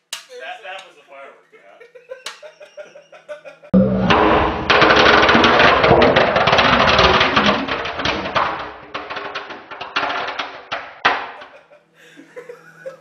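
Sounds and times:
firework fizzing and crackling: 4.3s - 11.7s.

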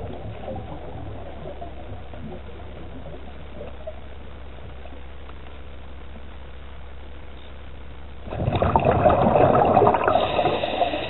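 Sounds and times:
constant low hum: 0.0s - 11.0s
underwater rumble and hiss: 0.0s - 11.0s
faint gurgling: 8.2s - 11.0s.

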